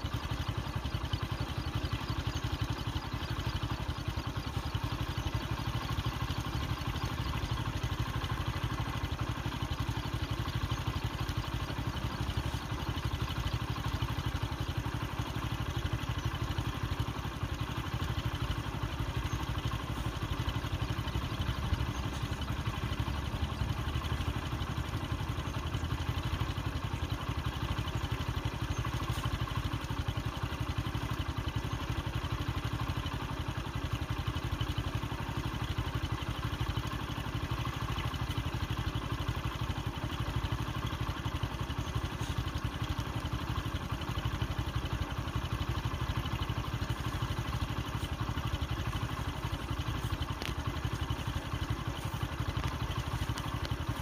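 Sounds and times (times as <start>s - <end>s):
vehicle engine idling: 0.0s - 54.0s.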